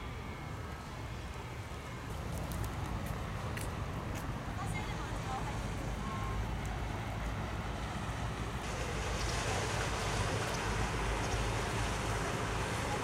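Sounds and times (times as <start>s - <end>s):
distant boat engine hum: 0.0s - 13.0s
water: 0.0s - 13.0s.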